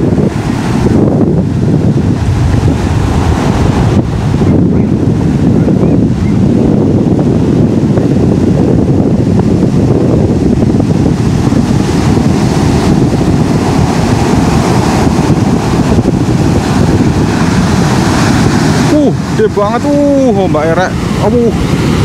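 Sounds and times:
ocean surf breaking on beach: 0.0 - 22.0
wind buffeting microphone: 0.0 - 22.0.

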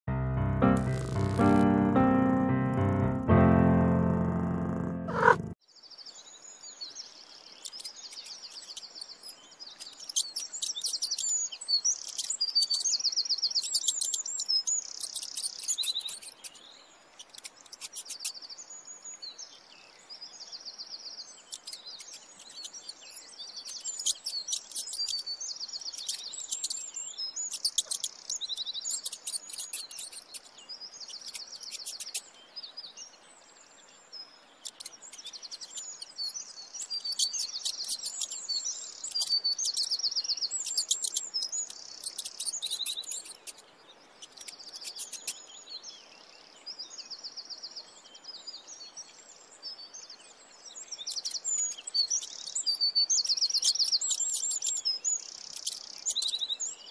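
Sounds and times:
intro jingle with keyboard notes: 0.1 - 5.6
songbirds chirping and trilling: 5.1 - 56.9.

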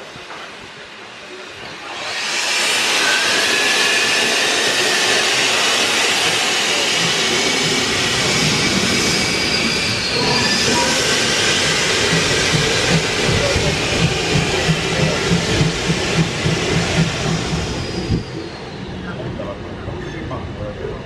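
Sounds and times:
steam hissing from cylinders: 0.0 - 19.5
locomotive low rhythmic beats: 10.7 - 18.4.

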